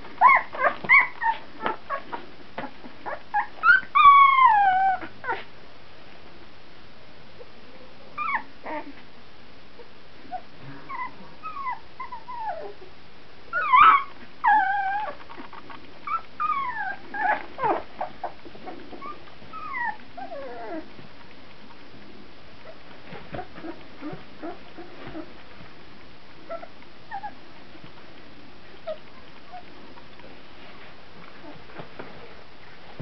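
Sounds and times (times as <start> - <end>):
puppies whimpering: 0.2 - 2.2, 3.0 - 5.5, 10.3 - 12.8, 13.5 - 21.0, 26.5 - 27.4.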